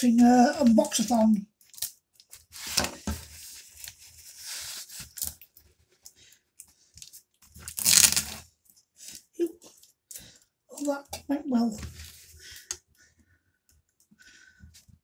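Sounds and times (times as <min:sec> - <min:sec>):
knife scraping packaging: 0:07.6 - 0:08.4
packaging ripping: 0:07.6 - 0:08.4.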